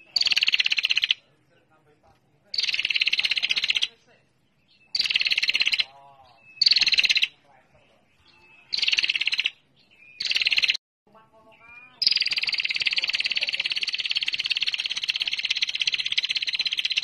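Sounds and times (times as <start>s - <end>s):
bird ticking trill: 0.0s - 1.3s, 2.5s - 7.5s, 8.1s - 10.8s, 11.5s - 17.0s.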